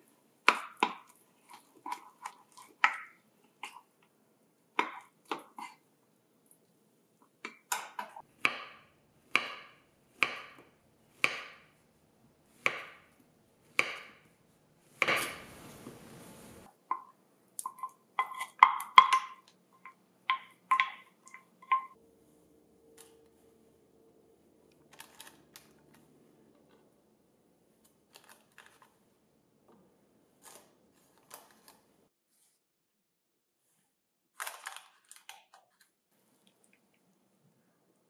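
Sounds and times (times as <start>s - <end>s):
wooden spoon scraping pot: 0.9s - 3.9s, 15.0s - 22.0s.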